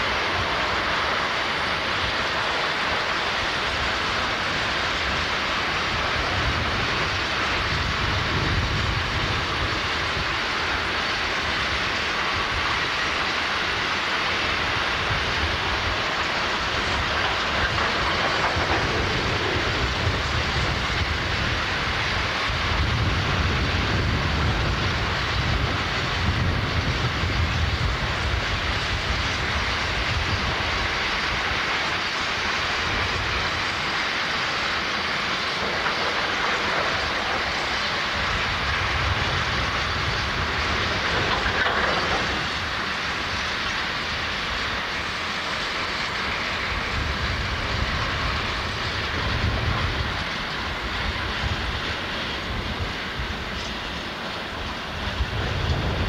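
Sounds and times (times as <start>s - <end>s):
diesel locomotive and wagons rumbling: 0.0s - 56.0s.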